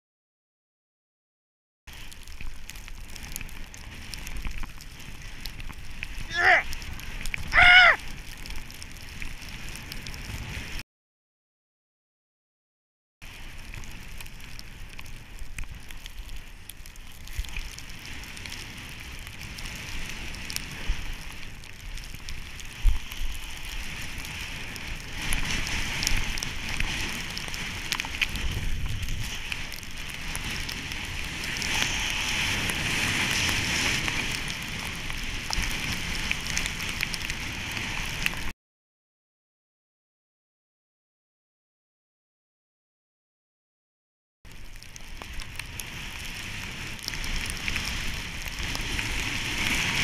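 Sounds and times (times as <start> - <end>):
snowboard sliding through powder: 1.9 - 10.8, 13.2 - 38.5, 44.6 - 50.0.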